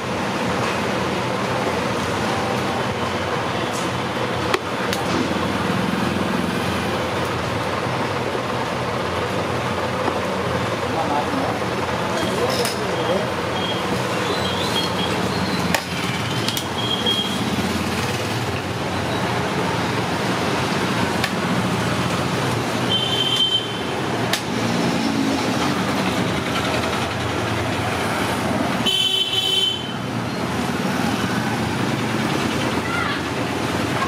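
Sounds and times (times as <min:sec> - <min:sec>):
road traffic noise: 0:00.0 - 0:34.0
vehicle horn toots: 0:22.9 - 0:23.9, 0:28.8 - 0:30.0.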